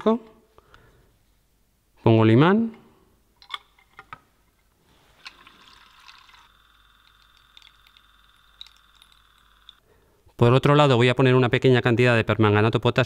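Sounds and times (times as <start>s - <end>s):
glass beaker clinking: 5.2s - 9.8s
magnetic stirrer whine: 5.4s - 9.8s.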